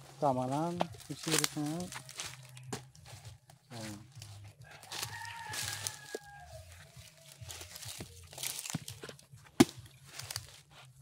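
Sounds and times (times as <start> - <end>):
rooster crowing: 4.6 - 7.3
blade chopping coconut husk: 7.6 - 10.6.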